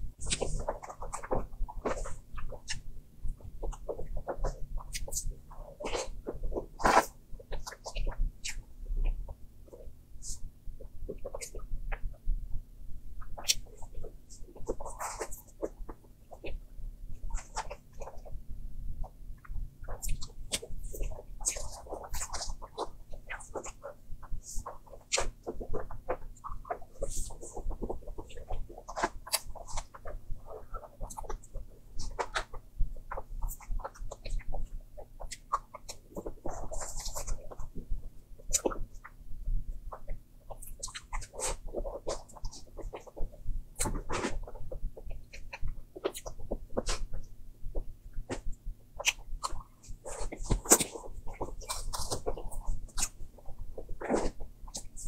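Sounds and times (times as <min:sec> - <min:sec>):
mouth smacks and chewing: 0:13.2 - 0:18.4, 0:19.0 - 0:55.0.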